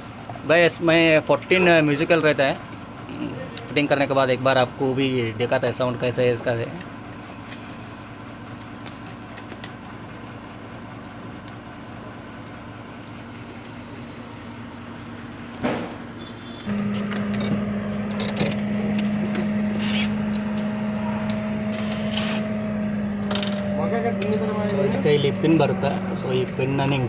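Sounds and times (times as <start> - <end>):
mechanical hum: 0.0 - 27.0
single-pitched hum: 16.2 - 27.0.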